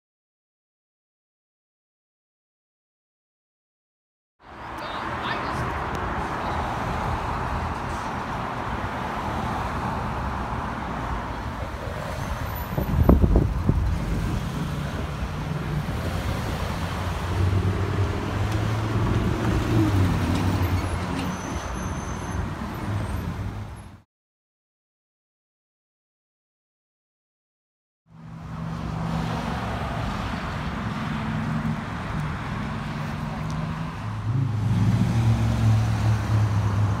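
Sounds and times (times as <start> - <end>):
cars driving along street: 4.4 - 24.0, 28.1 - 37.0.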